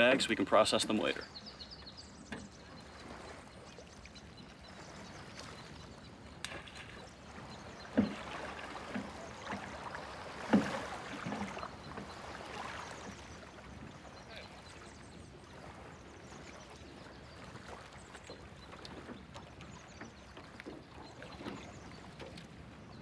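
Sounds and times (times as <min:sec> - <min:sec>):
faint wash of water: 0:00.0 - 0:23.0
water splashes: 0:00.0 - 0:23.0
oars knocking in oarlocks: 0:07.8 - 0:12.1.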